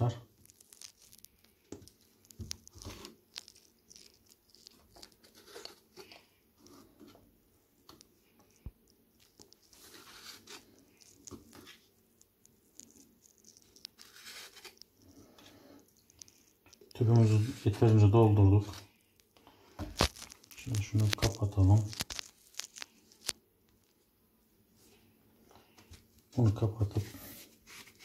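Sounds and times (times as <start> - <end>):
plastic bag crinkling: 0.2 - 6.0, 9.2 - 15.3, 19.8 - 23.4.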